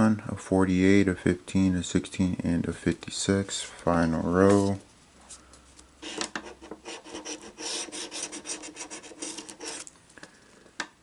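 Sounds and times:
scratching lottery ticket: 6.0s - 9.9s.

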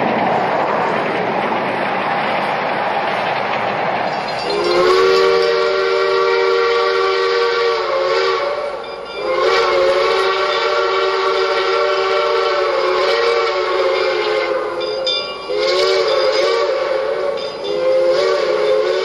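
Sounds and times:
steady steam hiss: 0.0s - 19.0s
steam whistle blasts: 4.4s - 19.0s.

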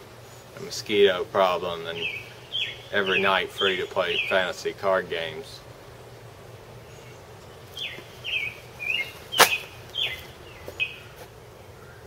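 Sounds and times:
bird chirping: 1.8s - 4.7s, 6.8s - 12.0s.

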